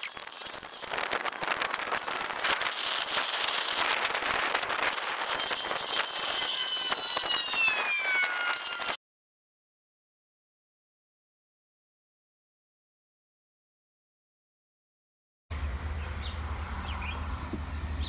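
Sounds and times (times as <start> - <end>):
faint whine falling in pitch: 0.0 - 9.0.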